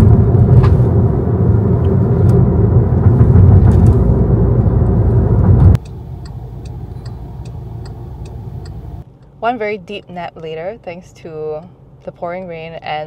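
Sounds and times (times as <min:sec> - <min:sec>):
car road rumble: 0:00.0 - 0:13.0
idling car hum: 0:00.0 - 0:13.0
turn indicator ticking: 0:05.8 - 0:09.3.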